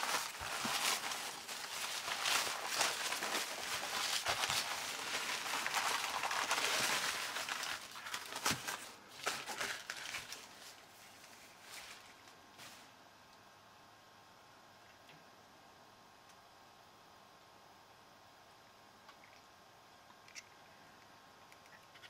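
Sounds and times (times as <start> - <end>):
packing paper rustling: 0.0 - 12.9.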